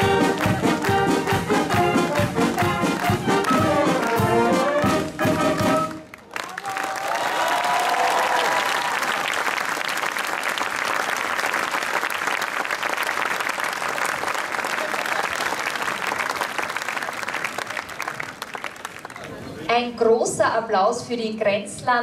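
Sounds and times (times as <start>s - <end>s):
brass band chord: 0.0s - 6.0s
audience applauding: 0.0s - 19.6s.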